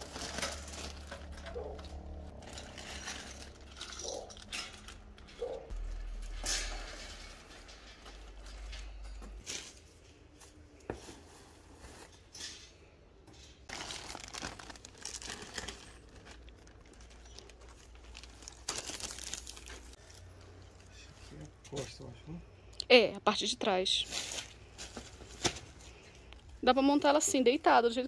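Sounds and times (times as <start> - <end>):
plastic film crinkling: 13.7 - 20.3.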